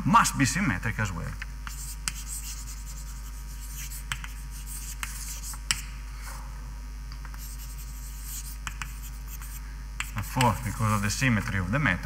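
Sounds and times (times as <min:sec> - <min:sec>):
writing scratching on board: 0:01.7 - 0:05.9, 0:07.3 - 0:11.2.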